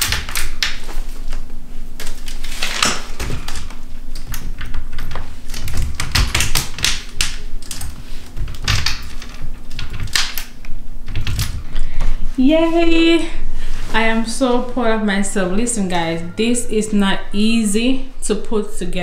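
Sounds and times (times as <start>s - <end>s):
wicker frame clicks and knocks: 2.0s - 10.5s.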